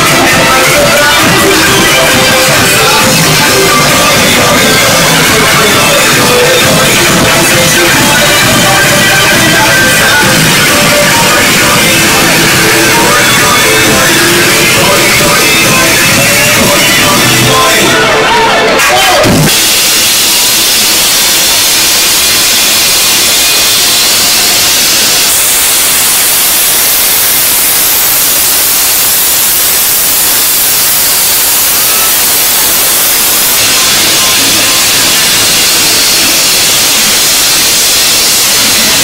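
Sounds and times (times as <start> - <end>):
loud steady hiss: 0.0 - 39.0.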